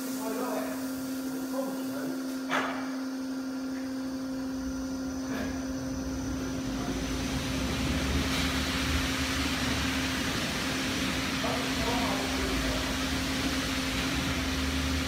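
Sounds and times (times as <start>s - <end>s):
ride machinery humming: 3.4s - 15.0s.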